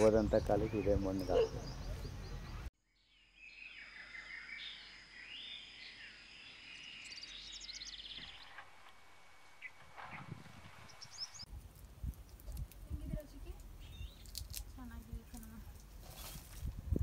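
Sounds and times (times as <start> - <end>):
birds calling and chirping: 0.0 - 11.5, 13.6 - 14.6.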